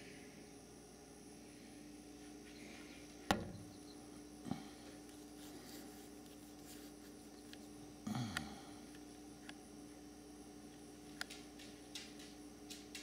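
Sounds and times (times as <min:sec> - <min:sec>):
faint hum and hiss: 0:00.0 - 0:13.0
camera handling knocks: 0:03.3 - 0:03.6.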